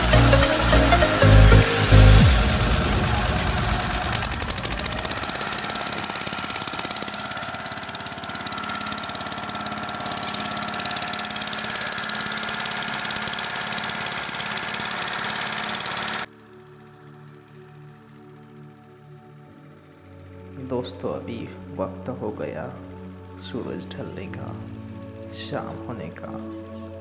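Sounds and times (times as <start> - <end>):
boat engine chugging: 0.0 - 16.3.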